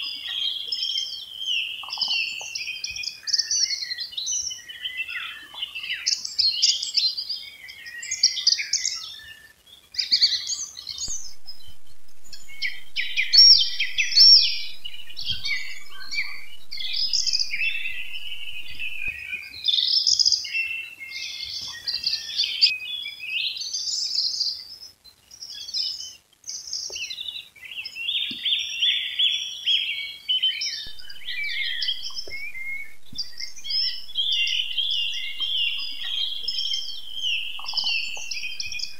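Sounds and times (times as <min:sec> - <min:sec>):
songbirds singing: 0:11.1 - 0:19.3, 0:20.6 - 0:38.9.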